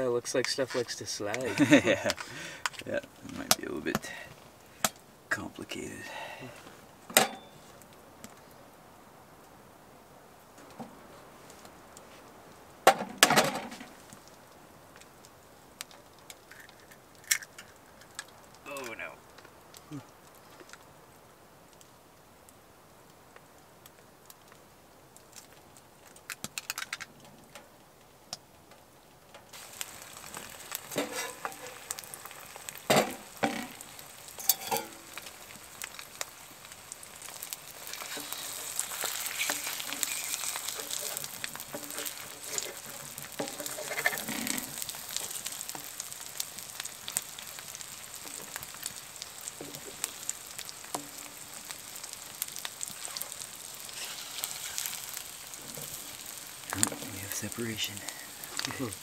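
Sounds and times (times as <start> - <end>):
food sizzling in a frying pan: 0.8 - 8.0, 29.4 - 59.0.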